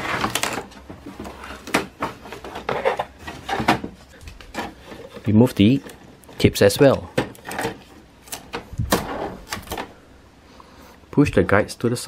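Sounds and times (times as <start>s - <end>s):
cardboard scraping against plastic: 0.0s - 6.2s, 7.3s - 9.9s.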